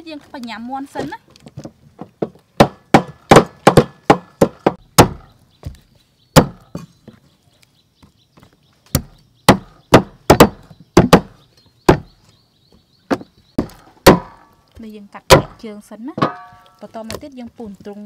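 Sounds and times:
cleaver chopping on wooden block: 2.2s - 5.3s, 6.4s - 6.9s, 8.9s - 12.1s, 13.1s - 14.4s, 15.3s - 15.6s.

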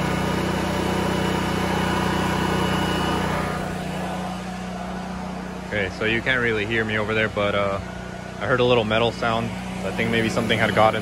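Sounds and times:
generator engine running: 0.0s - 11.0s.

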